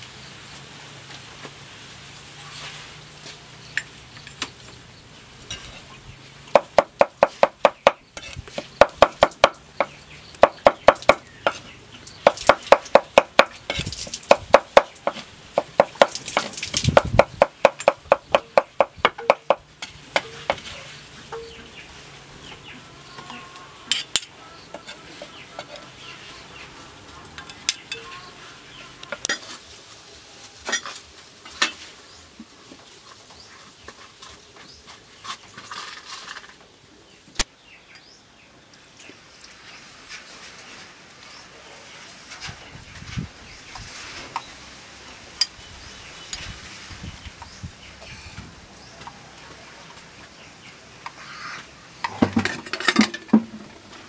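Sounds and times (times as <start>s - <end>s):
cleaver chopping on wooden block: 6.6s - 8.0s, 8.6s - 11.6s, 12.2s - 13.6s, 14.3s - 19.6s.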